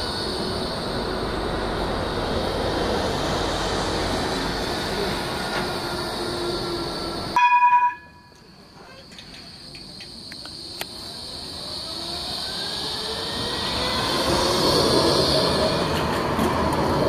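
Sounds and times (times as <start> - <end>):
tram motor whine: 0.0 - 17.0
tram running noise: 0.0 - 17.0
short loud pitched tone: 7.4 - 8.3.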